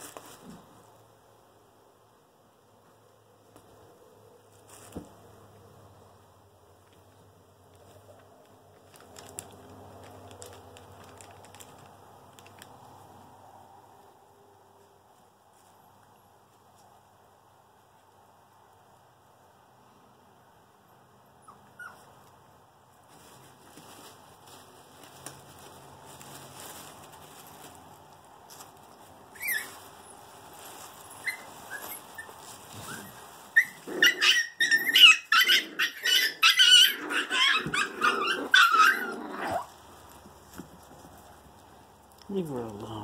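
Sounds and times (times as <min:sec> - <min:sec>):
puppy yelp: 0:21.4 - 0:22.1, 0:29.3 - 0:29.8, 0:31.2 - 0:39.7
puppies play-fighting: 0:23.2 - 0:42.0
high-pitched yips and barks: 0:31.2 - 0:39.7.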